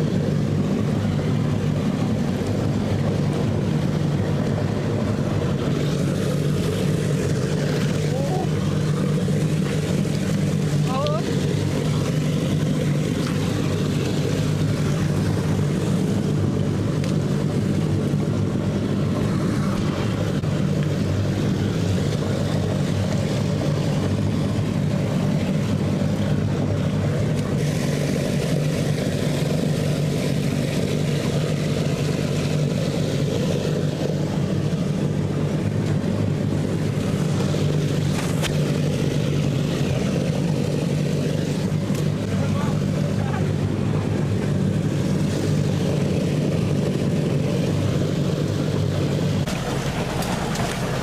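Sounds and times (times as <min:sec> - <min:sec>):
engine-driven water pump running: 0:00.0 - 0:51.0.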